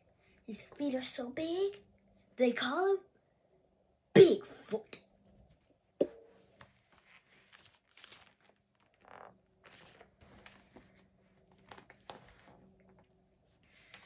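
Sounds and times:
book pages rustling: 0:06.4 - 0:13.1.

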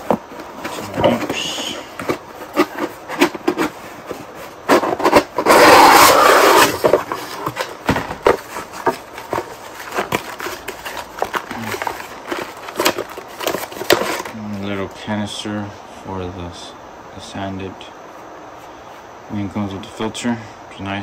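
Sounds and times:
packaging rustling: 0:00.0 - 0:14.4
plastic parts clicking and knocking: 0:06.8 - 0:14.4.

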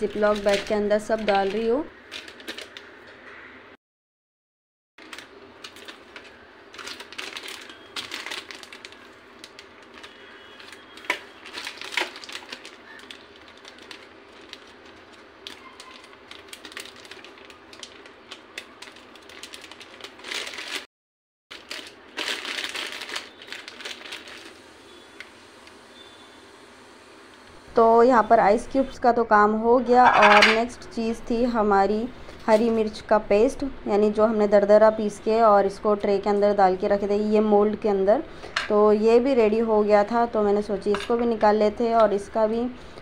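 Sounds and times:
plastic bag crinkling: 0:00.0 - 0:03.0, 0:05.0 - 0:20.9, 0:21.5 - 0:24.8.

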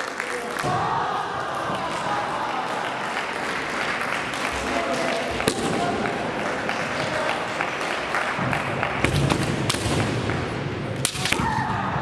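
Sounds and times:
spectators clapping: 0:00.0 - 0:10.6
bamboo sword strikes cracking: 0:11.0 - 0:11.6
people shouting: 0:11.1 - 0:12.0.

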